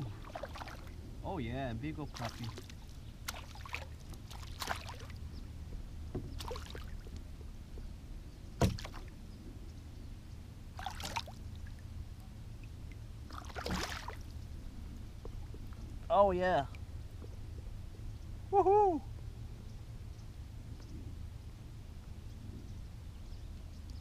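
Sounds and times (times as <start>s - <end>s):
fish splashing at water surface: 2.2s - 5.2s, 6.4s - 7.0s, 10.8s - 11.4s, 13.3s - 14.2s.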